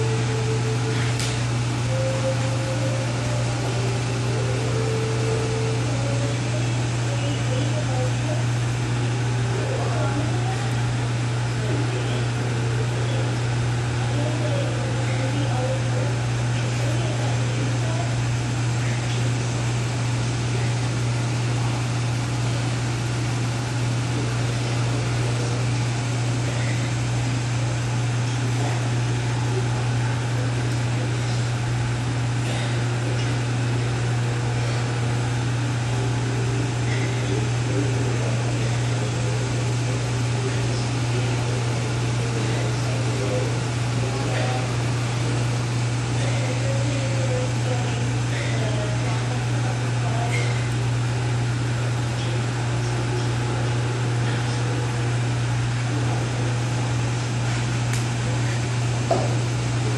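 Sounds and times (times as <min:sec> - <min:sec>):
air conditioning hum and rush: 0:00.0 - 0:59.9.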